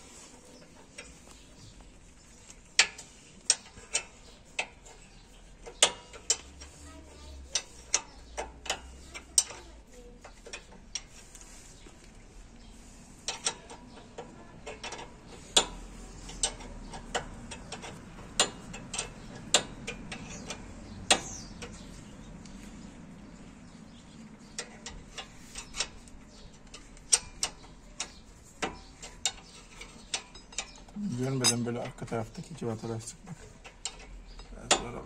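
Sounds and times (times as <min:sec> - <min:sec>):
wrench clicking on bolts: 0:02.8 - 0:06.8, 0:07.4 - 0:11.2, 0:13.2 - 0:22.0, 0:24.5 - 0:31.8, 0:33.6 - 0:35.0.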